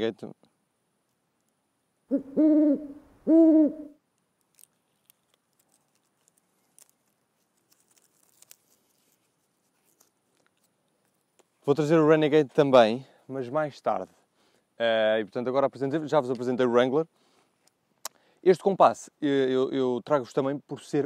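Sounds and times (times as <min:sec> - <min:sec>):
owl hooting: 0:02.1 - 0:04.0.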